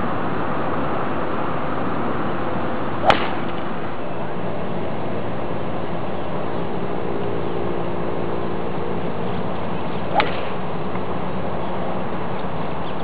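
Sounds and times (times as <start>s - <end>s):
steady background hiss: 0.0s - 13.0s
golf club striking ball: 3.0s - 3.7s, 10.1s - 10.6s.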